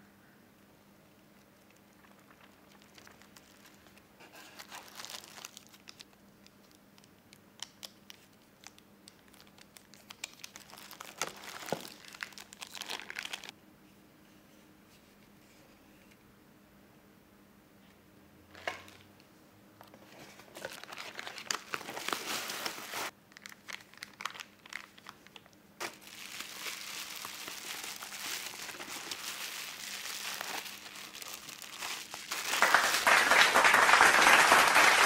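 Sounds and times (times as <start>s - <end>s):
faint steady hum: 0.0s - 33.8s
plastic packaging crinkling: 1.6s - 13.5s, 19.8s - 33.4s.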